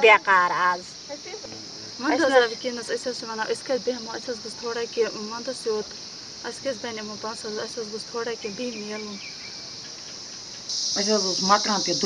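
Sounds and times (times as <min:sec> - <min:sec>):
woman talking: 0:00.0 - 0:09.2
high hiss: 0:00.0 - 0:12.0.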